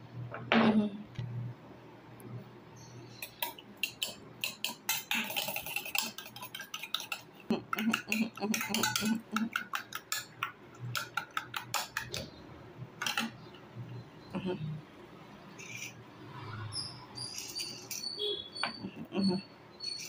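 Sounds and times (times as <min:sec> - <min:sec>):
metal spoon beating eggs in bowl: 0:03.2 - 0:12.4, 0:13.0 - 0:13.6.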